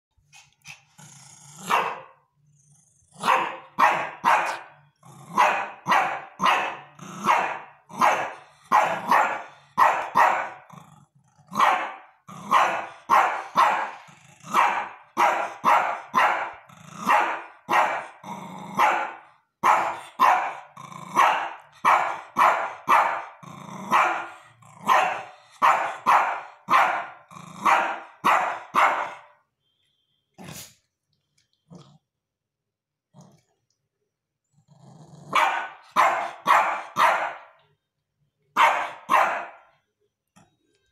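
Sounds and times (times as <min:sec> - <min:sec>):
small dog barking: 0:01.6 - 0:02.2, 0:03.2 - 0:04.7, 0:05.3 - 0:10.6, 0:11.5 - 0:18.2, 0:18.8 - 0:29.3, 0:35.3 - 0:37.6, 0:38.6 - 0:39.7.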